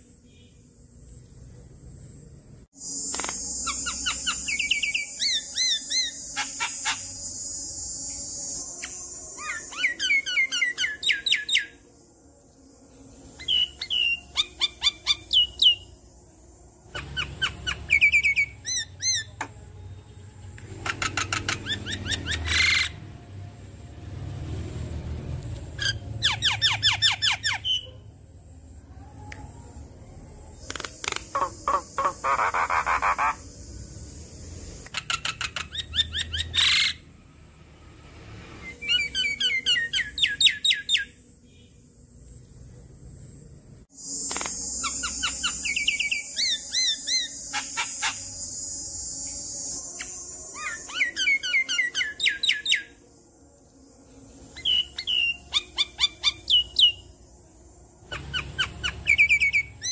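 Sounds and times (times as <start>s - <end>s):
bird singing with clicks and whistles: 2.8s - 11.8s, 13.4s - 16.0s, 16.9s - 19.6s, 25.8s - 27.9s, 30.6s - 33.5s, 34.8s - 37.0s, 38.6s - 41.7s, 44.0s - 53.0s, 54.5s - 57.1s, 58.0s - 59.9s.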